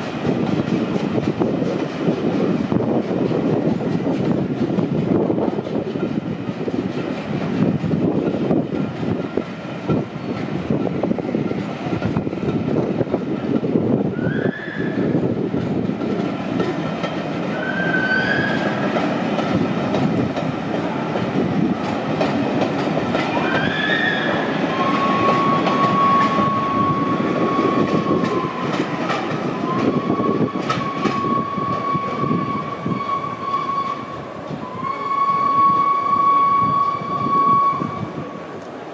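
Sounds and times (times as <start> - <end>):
train coaches rumbling past: 0.0 - 38.9
high-pitched wheel squeal: 14.2 - 15.2, 17.5 - 18.8, 23.4 - 28.7, 29.6 - 38.2
wheels clicking over rail joints: 15.5 - 33.1.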